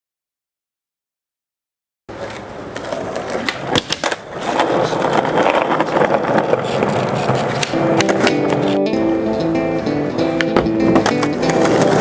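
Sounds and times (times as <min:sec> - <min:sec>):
skateboard wheels rolling on asphalt: 0:02.1 - 0:08.8, 0:10.5 - 0:12.0
skateboard clacks: 0:02.1 - 0:12.0.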